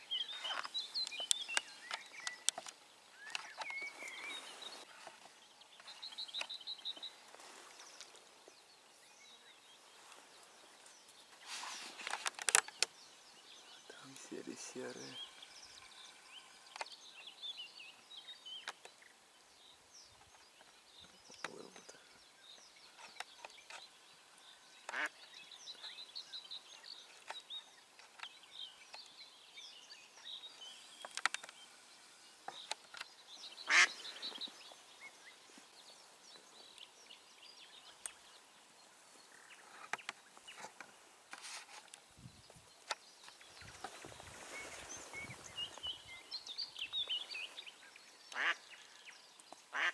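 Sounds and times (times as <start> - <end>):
songbirds twittering: 0.0 - 49.9.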